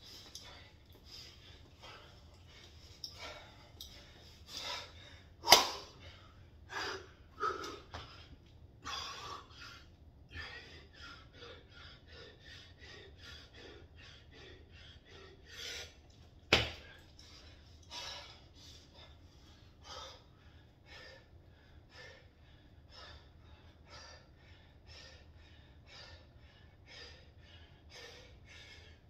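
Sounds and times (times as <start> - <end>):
man panting heavily: 0.0 - 29.0
sharp slaps: 5.4 - 5.9, 16.5 - 16.9.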